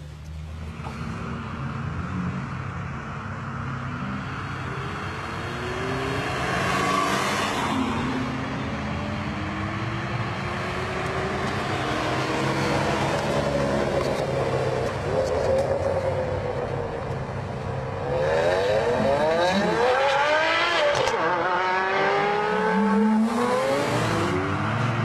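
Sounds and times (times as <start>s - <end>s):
car engine accelerating: 18.0s - 25.0s.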